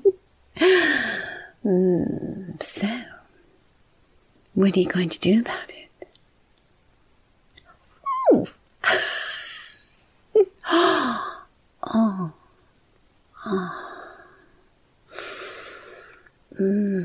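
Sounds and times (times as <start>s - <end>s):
woman sighing and moaning: 8.1s - 12.5s, 13.4s - 14.4s, 15.2s - 17.0s.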